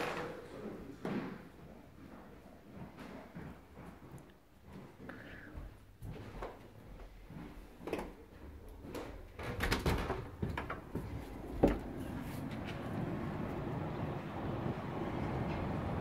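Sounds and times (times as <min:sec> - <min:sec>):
glass door clicking and knocking: 0:09.3 - 0:12.0
steady outdoor noise: 0:10.4 - 0:16.0.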